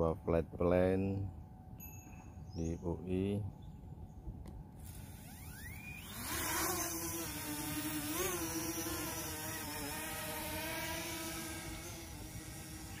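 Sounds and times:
drone propellers buzzing: 4.8s - 13.0s.

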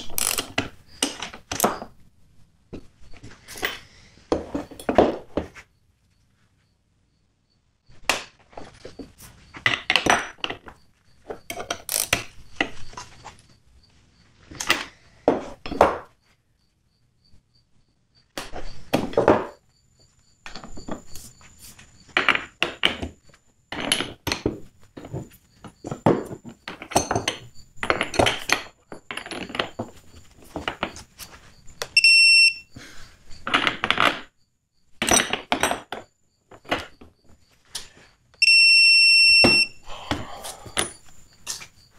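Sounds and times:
high electronic beeps: 32.0s - 32.7s, 38.4s - 39.8s.

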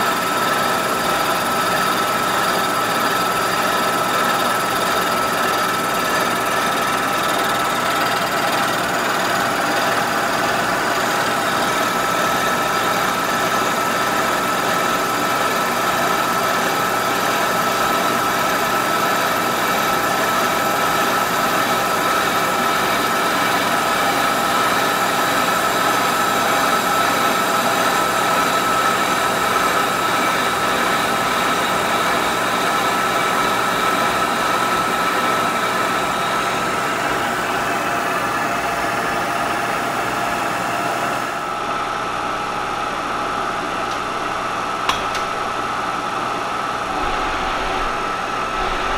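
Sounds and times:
milling machine drone: 41.6s - 48.9s
high-pitched cutting whine: 46.7s - 48.9s.

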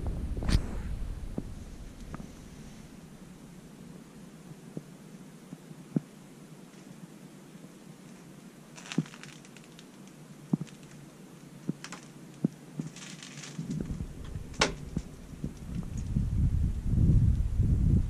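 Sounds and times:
wind rumbling on microphone: 0.0s - 4.0s, 13.6s - 18.0s
sharp clicks and crackles: 8.8s - 11.0s, 11.6s - 16.2s.

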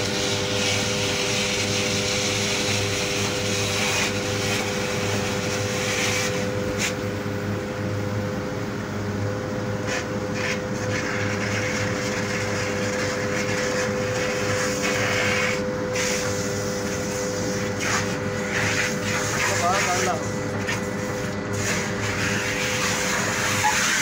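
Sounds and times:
pump humming: 0.0s - 24.0s
suction hose hissing: 9.9s - 24.0s.

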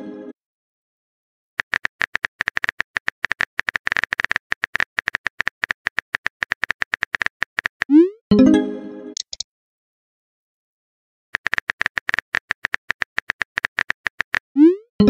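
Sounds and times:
keyboard typing clicks: 9.2s - 9.4s.

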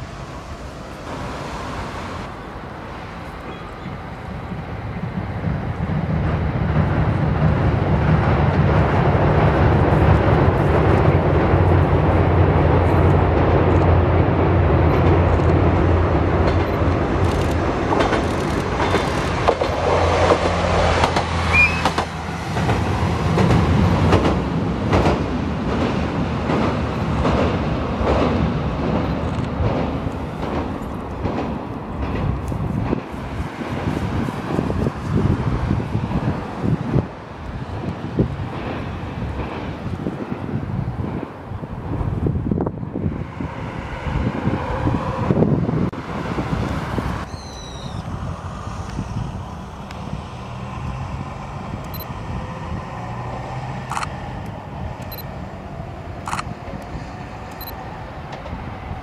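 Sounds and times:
rail clatter with sharp clicks: 0.0s - 41.3s, 53.8s - 59.0s
diesel railcar engine drone: 0.0s - 59.0s.

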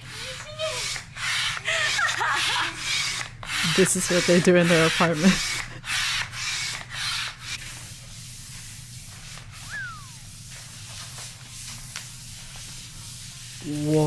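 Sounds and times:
falling whistle-like glide: 9.6s - 10.3s.

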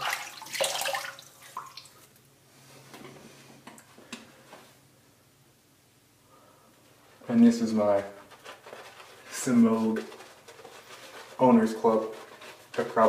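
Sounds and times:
water splashing at sink: 0.0s - 2.1s
water dripping: 0.0s - 2.2s.

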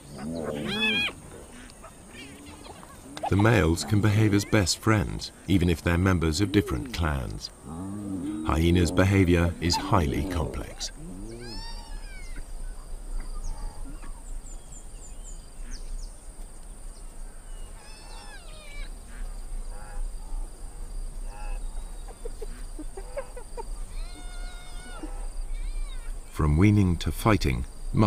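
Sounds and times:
hyena cubs squealing and whining: 0.0s - 4.7s, 8.0s - 14.2s, 17.6s - 19.0s, 22.9s - 26.2s.

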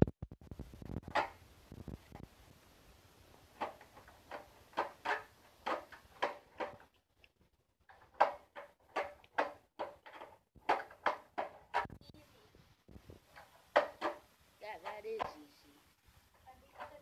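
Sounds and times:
skateboard clacking on concrete: 1.1s - 1.4s, 3.5s - 6.9s, 7.9s - 11.9s, 13.3s - 15.4s, 16.5s - 17.0s.

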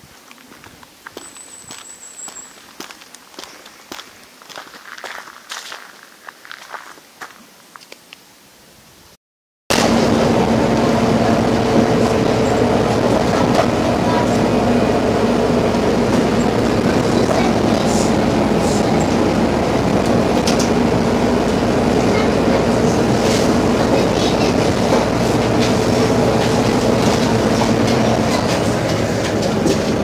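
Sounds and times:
bus engine drone: 9.7s - 30.0s
road noise: 9.7s - 30.0s.

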